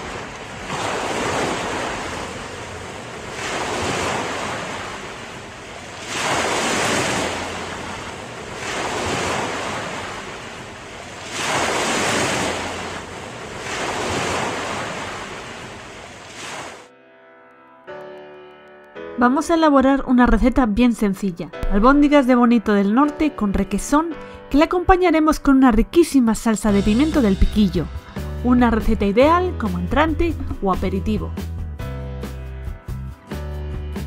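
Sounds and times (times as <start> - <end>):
ocean waves washing: 0.0 - 16.9.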